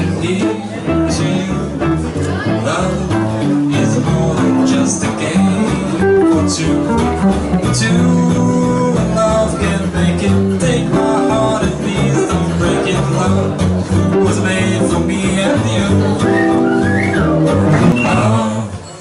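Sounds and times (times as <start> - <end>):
guitar-led music: 0.0 - 19.0.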